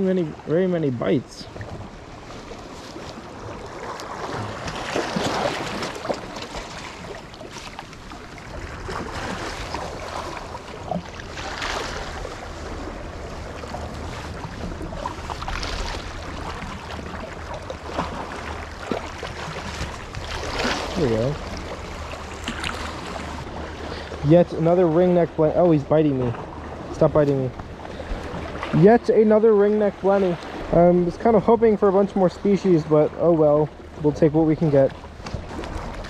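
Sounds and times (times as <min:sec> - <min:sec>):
waves splashing against rocks: 0:01.6 - 0:30.8.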